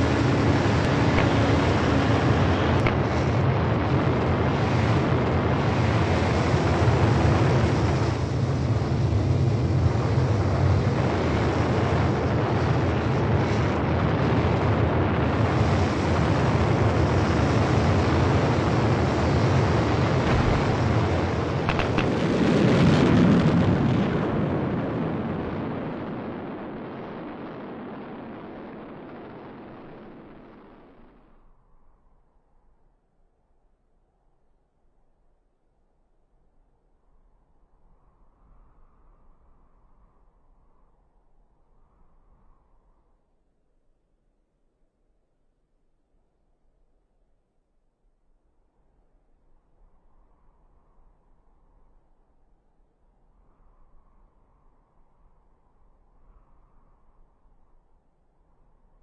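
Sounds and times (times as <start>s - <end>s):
rocket thrusters rushing: 20.2s - 22.9s.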